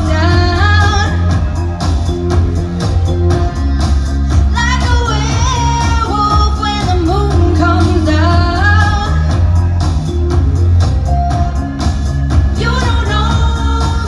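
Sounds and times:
woman singing into a microphone: 0:00.0 - 0:01.6, 0:04.2 - 0:09.6, 0:12.5 - 0:14.0
pop track with bass and drums: 0:00.0 - 0:14.0.

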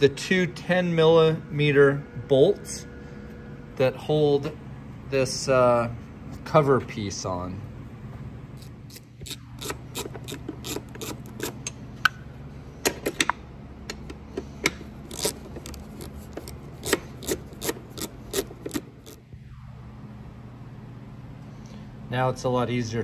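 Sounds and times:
steady low hum: 0:00.0 - 0:23.0
hand ratchet clicking: 0:08.9 - 0:11.8, 0:14.7 - 0:19.2.

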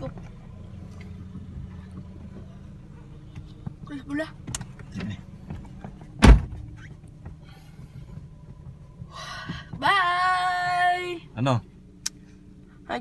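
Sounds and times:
car engine and road rumble: 0:00.0 - 0:13.0
sharp thump: 0:06.2 - 0:06.7.

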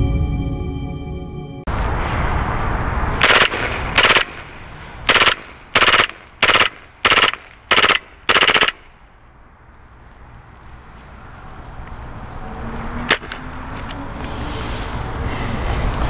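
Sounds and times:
airsoft pistol rapid shots: 0:03.2 - 0:08.9, 0:13.1 - 0:13.4.

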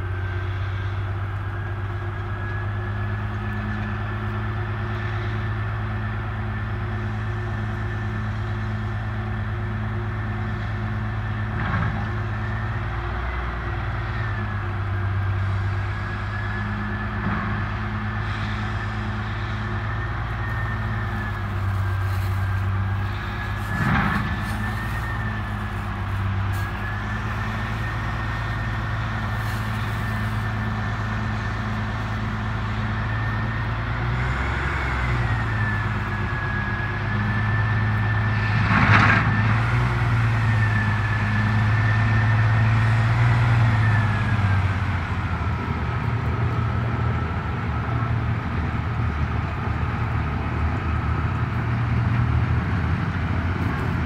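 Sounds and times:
diesel locomotive running: 0:00.0 - 0:54.0
high wavering whine: 0:13.8 - 0:39.6.

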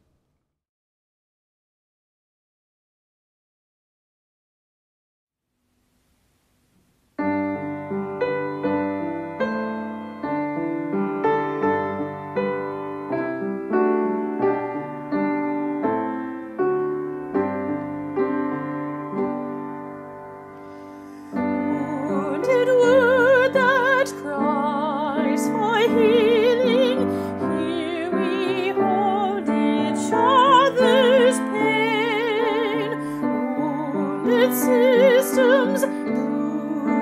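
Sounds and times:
slow piano notes: 0:06.5 - 0:37.0
woman singing with vibrato: 0:21.4 - 0:37.0.

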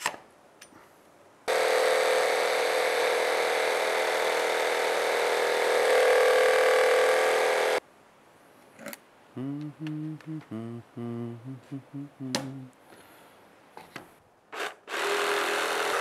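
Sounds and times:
jigsaw cutting plywood: 0:01.5 - 0:07.8, 0:14.6 - 0:16.0.

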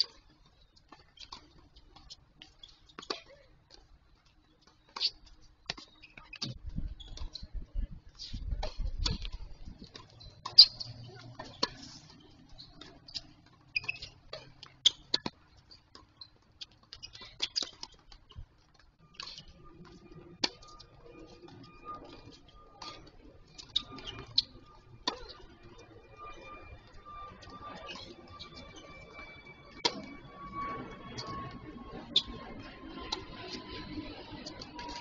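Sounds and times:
tennis ball bouncing: 0:08.2 - 0:25.9.

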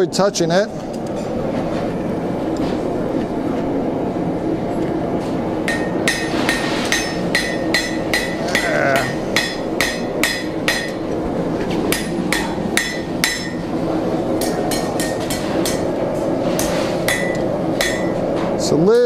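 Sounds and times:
steady background noise: 0:00.0 - 0:19.0
hammer striking steel on anvil: 0:05.7 - 0:11.1, 0:11.9 - 0:13.7, 0:14.4 - 0:16.0, 0:16.6 - 0:18.2.

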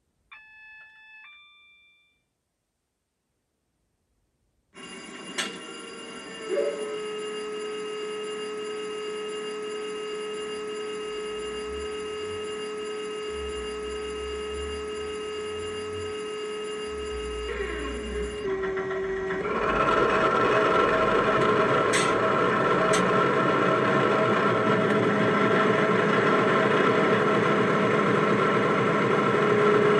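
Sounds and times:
diesel engine idling with whine: 0:13.3 - 0:16.2, 0:16.9 - 0:29.9.

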